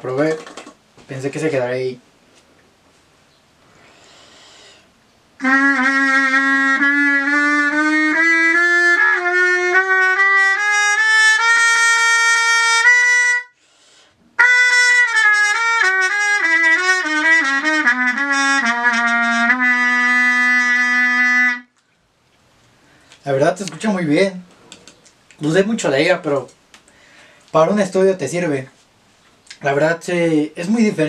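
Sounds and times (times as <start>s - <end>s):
player breathing in: 3.7s - 4.9s, 13.6s - 14.2s, 26.9s - 27.5s
muted trumpet playing: 5.4s - 13.6s, 14.4s - 21.7s.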